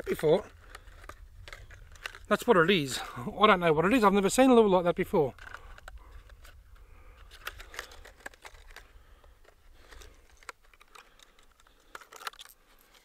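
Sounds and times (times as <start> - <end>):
plastic packaging crinkling: 7.2 - 13.0.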